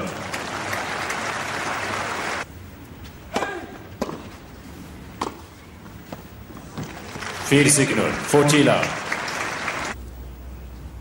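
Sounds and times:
crowd applause: 0.0 - 2.4, 6.8 - 10.0
tennis rackets hitting ball: 3.3 - 4.4, 5.2 - 5.5.

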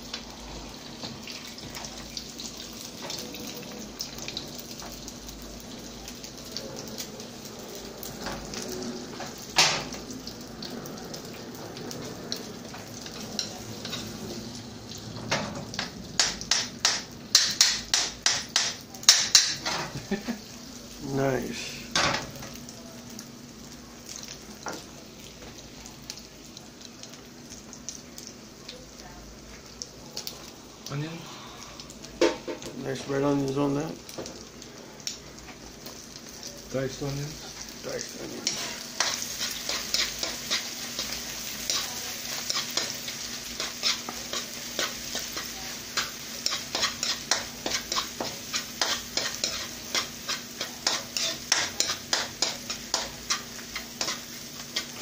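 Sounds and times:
eggs sizzling in hot oil: 0.0 - 55.0
spatula scraping a pan: 38.2 - 55.0.

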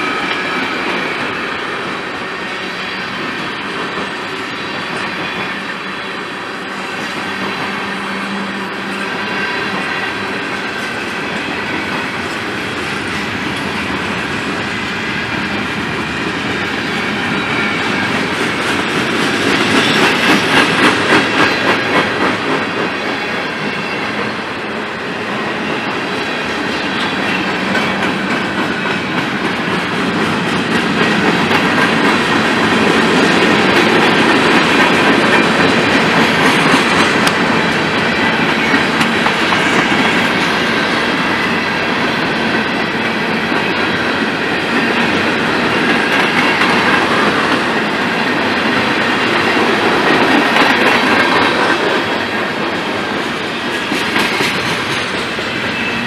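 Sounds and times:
freight train rumble and rattle: 0.0 - 56.0
train wheels clacking over rail joints: 6.9 - 24.4, 25.4 - 56.0.

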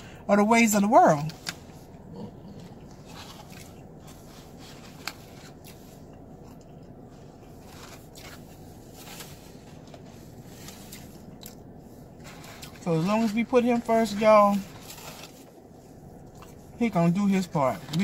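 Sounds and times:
steady low hum: 0.0 - 18.0
person chewing a sandwich: 1.3 - 12.8, 14.6 - 16.8.

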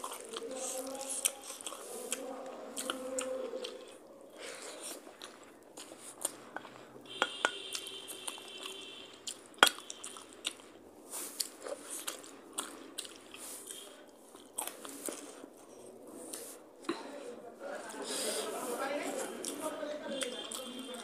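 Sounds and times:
fingers mixing rice on steel plate: 0.0 - 8.5
close chewing with wet mouth noises: 0.0 - 21.0.

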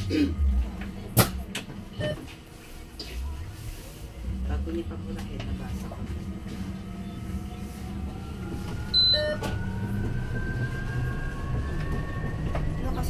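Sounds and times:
low road rumble: 0.0 - 13.0
electric bus motor whining: 3.9 - 13.0
high-pitched beep: 9.0 - 9.4.

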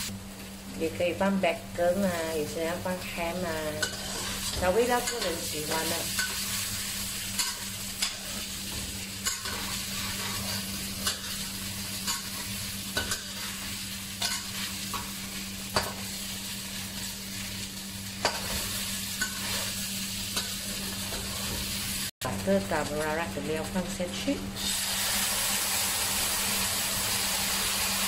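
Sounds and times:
food sizzling in wok: 0.0 - 28.0
metal spatula scraping pan: 3.7 - 6.6.

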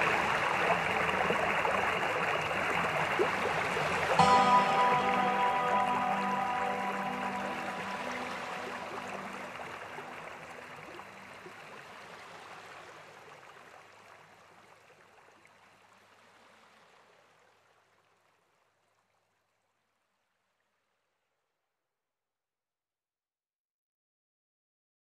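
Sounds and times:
soft sustained music notes: 0.0 - 11.8
flowing stream water: 0.0 - 18.9.

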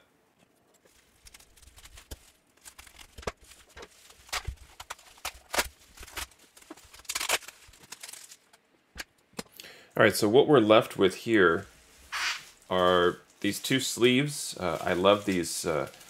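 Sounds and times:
bubble wrap crinkling: 0.7 - 8.7, 11.3 - 16.0.

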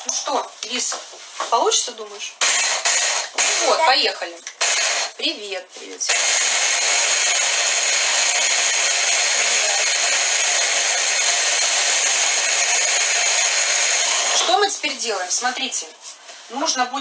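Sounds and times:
hand blender chopping: 2.4 - 3.9, 4.5 - 5.1, 6.1 - 14.6.

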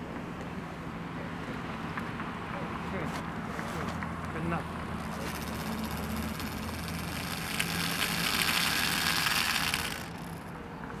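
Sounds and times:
clockwork motor whirring: 5.0 - 10.6.

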